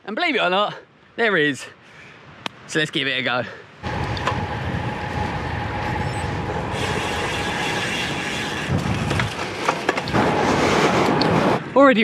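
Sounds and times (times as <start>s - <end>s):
bike tyres on asphalt: 3.8s - 11.8s
wind rushing over microphone: 3.8s - 11.8s.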